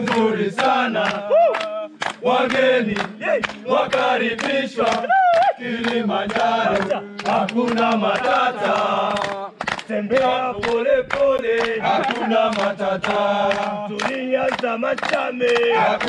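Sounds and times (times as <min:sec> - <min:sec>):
men singing and chanting: 0:00.0 - 0:16.0
rhythmic hand clapping: 0:00.0 - 0:16.0.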